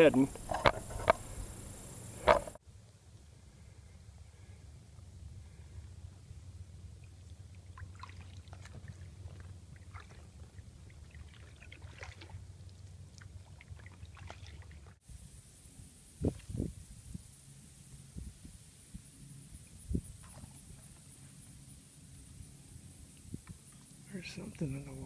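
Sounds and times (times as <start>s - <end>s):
low steady rumble: 0.0s - 25.0s
paddle drips and small splashes: 6.8s - 15.0s, 20.1s - 21.8s.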